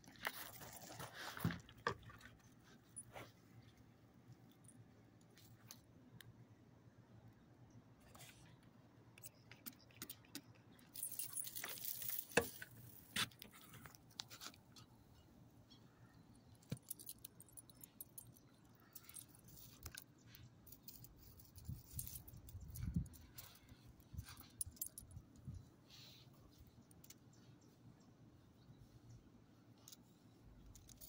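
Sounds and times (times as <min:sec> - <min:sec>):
dog collar tags jingling: 0:10.7 - 0:12.8, 0:16.6 - 0:25.3.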